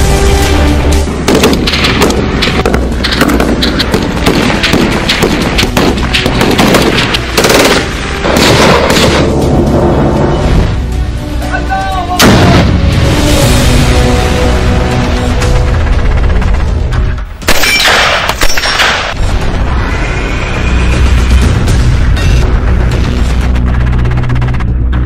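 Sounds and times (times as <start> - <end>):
background music: 0.0 - 25.0
rapid gunfire: 1.3 - 9.2
loud explosive blast: 12.2 - 13.9.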